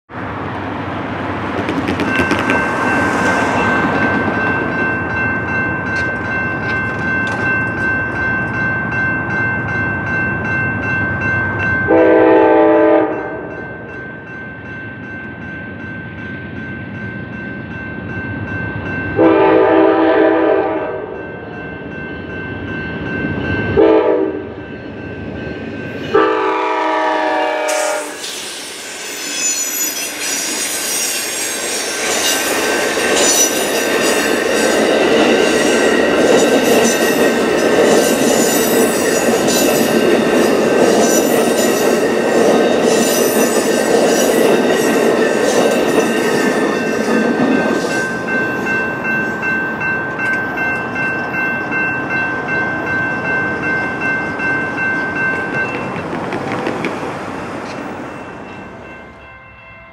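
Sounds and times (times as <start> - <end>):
crossing warning bell ringing: 1.1 - 56.7, 57.4 - 59.9
train wheels clattering on rails: 1.4 - 8.7, 29.2 - 49.4, 53.2 - 58.9
locomotive air horn: 11.9 - 13.5, 19.2 - 21.2, 23.8 - 24.5, 26.1 - 28.3.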